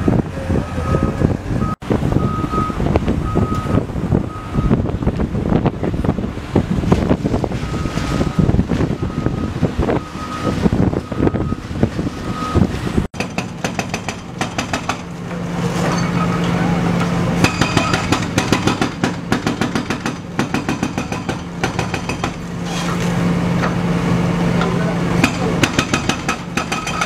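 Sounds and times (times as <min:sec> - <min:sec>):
diesel engine running: 0:00.0 - 0:27.0
bricks knocking and crashing: 0:25.2 - 0:27.0.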